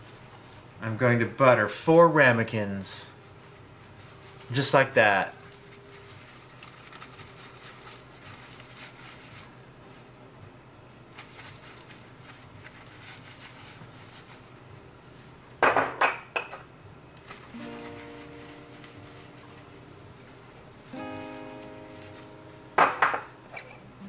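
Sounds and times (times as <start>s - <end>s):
held musical chord: 17.6s - 20.3s, 20.9s - 22.8s
ceramic ramekins clinking: 22.7s - 23.8s.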